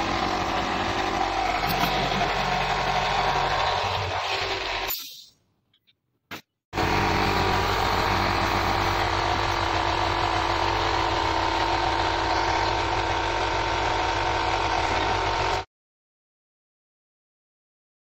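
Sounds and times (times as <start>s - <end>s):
machine humming: 6.8s - 15.6s.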